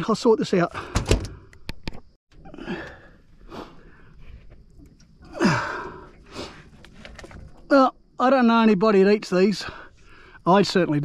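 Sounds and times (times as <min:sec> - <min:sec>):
man breathing hard and grunting: 0:02.5 - 0:04.0, 0:05.3 - 0:06.6.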